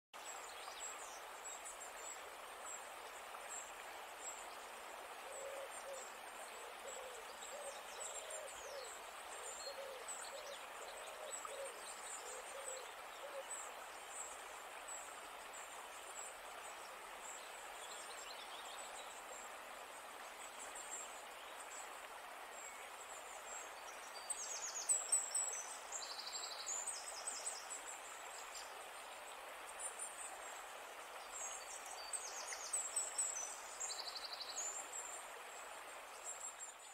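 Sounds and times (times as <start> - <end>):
steady hiss: 0.2 - 36.9
low owl-like hoots: 5.2 - 13.5.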